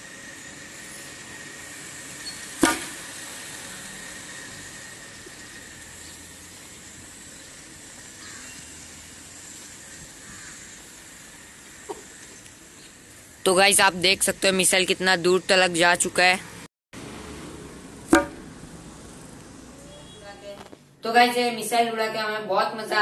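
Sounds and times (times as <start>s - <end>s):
steady background hiss: 0.0s - 23.0s
air launcher pop: 2.6s - 3.0s, 18.1s - 18.5s.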